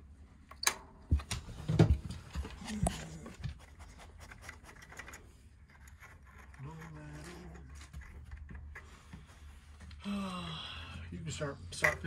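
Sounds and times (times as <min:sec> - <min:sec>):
quiet rubbing: 0:02.2 - 0:10.1.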